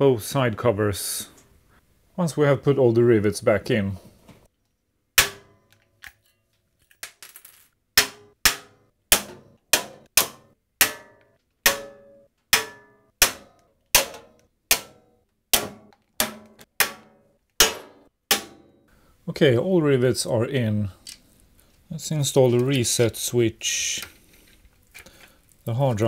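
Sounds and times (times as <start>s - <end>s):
rivet tool cracks ringing metal: 8.0s - 18.7s.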